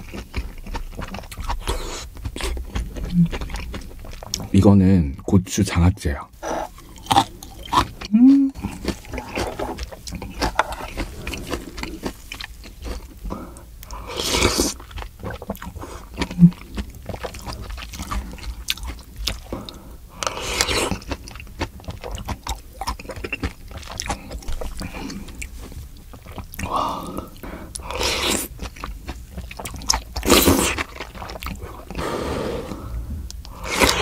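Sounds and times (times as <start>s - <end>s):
wet chewing: 0.0s - 5.3s, 6.4s - 34.0s.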